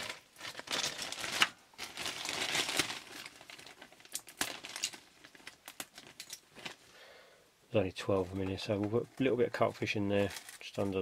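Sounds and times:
plastic bag crinkling: 0.0s - 6.9s.

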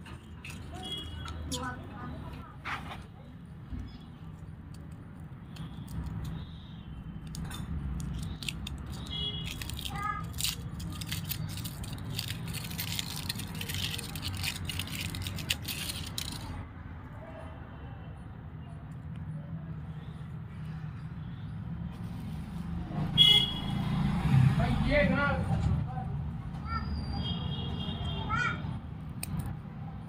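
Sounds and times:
foil wrapper crinkling: 7.2s - 16.6s.

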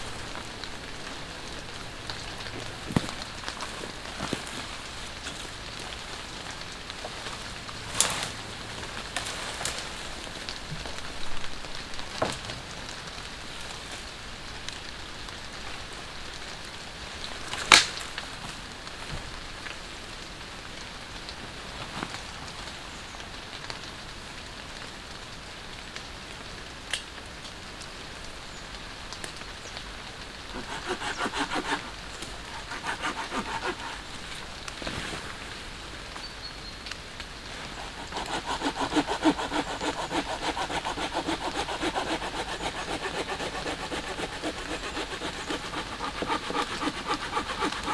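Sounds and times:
rain falling on woodland: 0.0s - 47.9s
sharp cracks: 17.5s - 18.2s.

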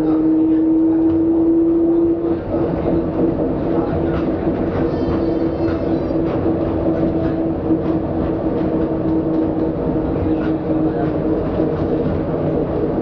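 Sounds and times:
tram running: 0.0s - 13.0s.

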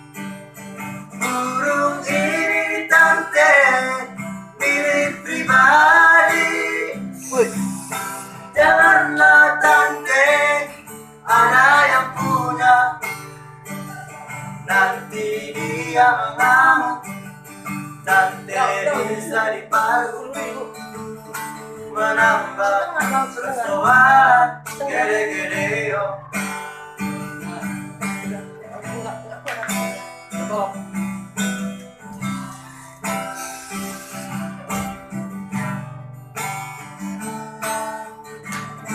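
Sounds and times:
acoustic guitar strumming: 0.0s - 38.9s
man singing: 1.2s - 13.3s, 13.9s - 17.2s, 18.0s - 26.5s.

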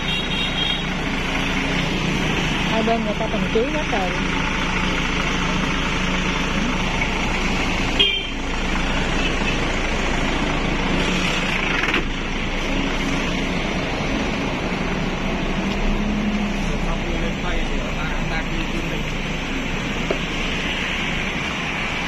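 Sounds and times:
coach engine idling: 0.0s - 22.0s
high horn toot: 8.0s - 8.4s.

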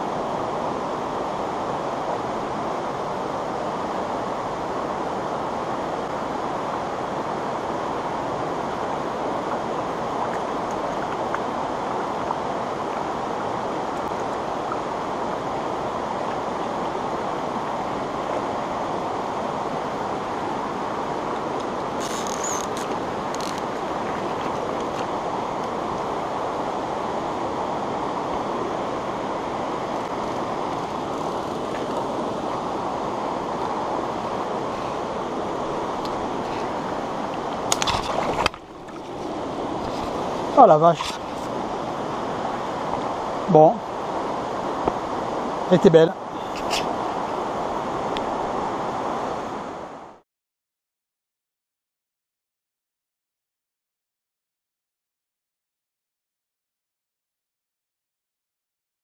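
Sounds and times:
stream rushing over rocks: 0.0s - 50.2s
scratchy rustle: 22.0s - 24.7s.

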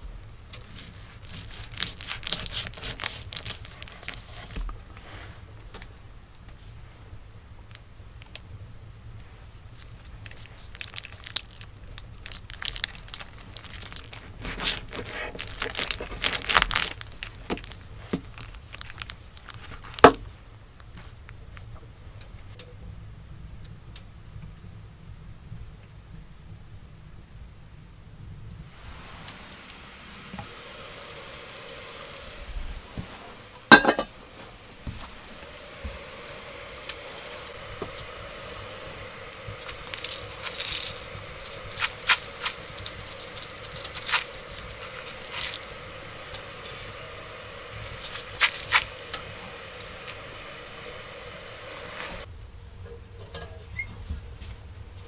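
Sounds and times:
kettle hissing: 0.0s - 8.5s, 9.2s - 21.3s, 28.5s - 52.3s
faint held tone: 44.8s - 48.0s.

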